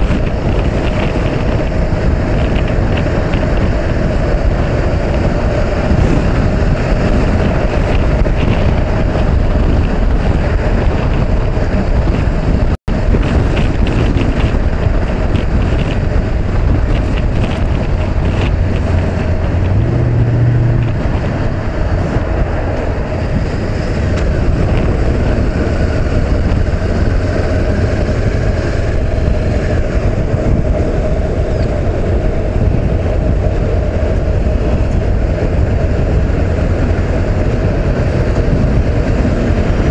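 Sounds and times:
heavy wind noise: 0:00.0 - 0:39.9
motorcycle engine running: 0:00.0 - 0:39.9.

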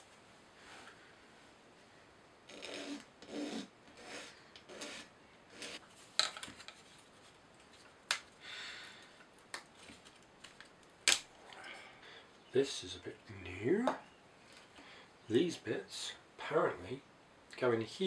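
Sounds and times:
sharp cracks of wood: 0:09.5 - 0:11.4.

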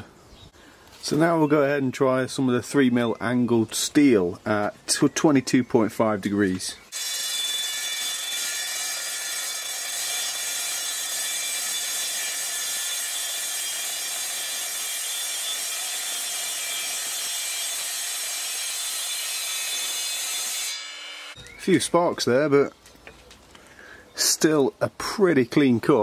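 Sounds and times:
mitre saw cutting metal: 0:06.9 - 0:21.4.

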